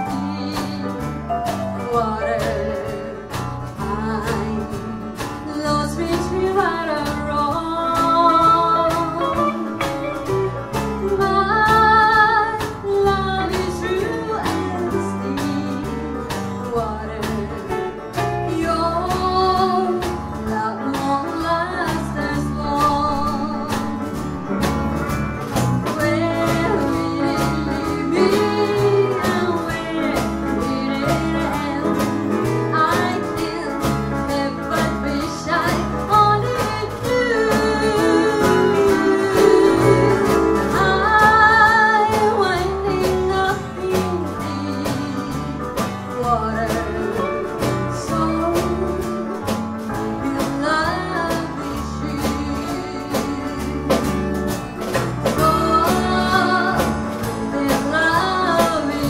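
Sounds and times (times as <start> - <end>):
country band playing: 0.0 - 59.0
pedal steel guitar: 35.6 - 51.3.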